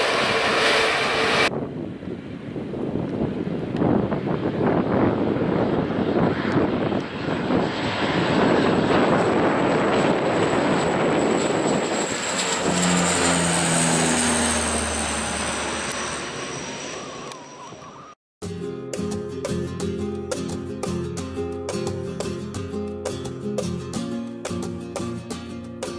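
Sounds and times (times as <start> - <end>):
high engine whine: 0.0 - 1.6, 4.8 - 18.2
turboprop aircraft taking off: 0.0 - 18.2.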